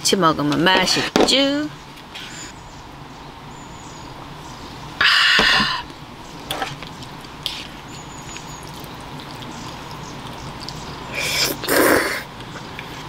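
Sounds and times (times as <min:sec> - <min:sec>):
slurping noodles: 0:07.4 - 0:12.3.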